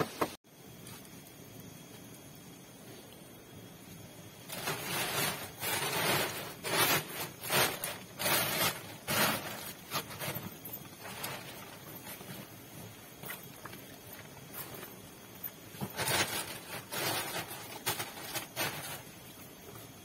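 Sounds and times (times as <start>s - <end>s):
rustling and scraping on dirt: 4.4s - 20.0s.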